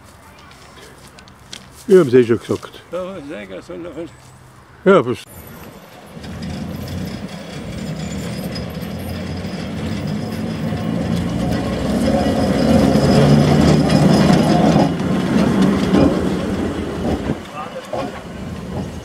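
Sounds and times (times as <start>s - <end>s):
locomotive engine hum: 0.0s - 19.0s
running gear rattling on track: 5.3s - 19.0s.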